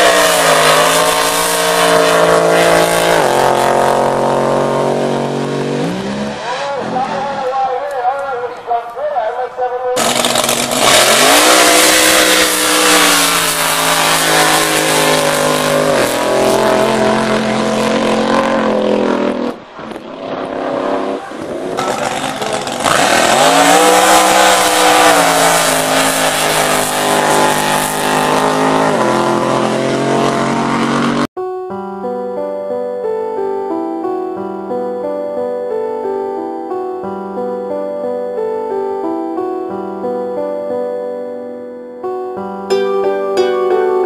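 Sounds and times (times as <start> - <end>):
drag boat engine at full throttle: 0.0 - 7.4, 10.0 - 31.3.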